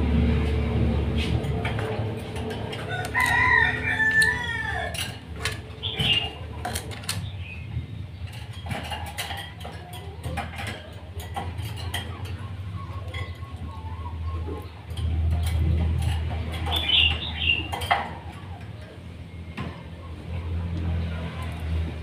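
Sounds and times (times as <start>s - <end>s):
rooster crowing: 2.8s - 5.3s.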